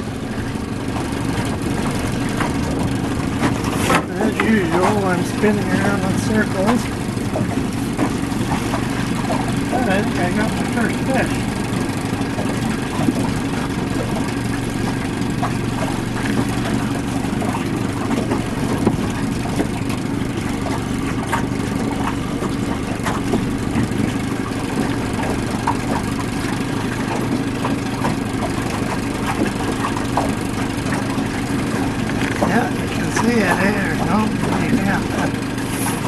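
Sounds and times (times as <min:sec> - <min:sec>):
outboard motor running: 0:00.0 - 0:36.0
person talking: 0:09.7 - 0:11.4, 0:32.4 - 0:35.4.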